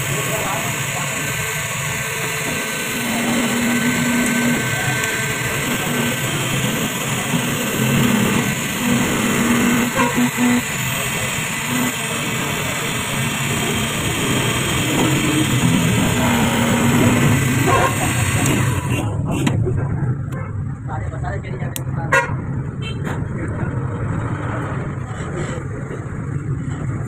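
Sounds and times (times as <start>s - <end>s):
key duplicating machine milling: 0.0s - 19.5s.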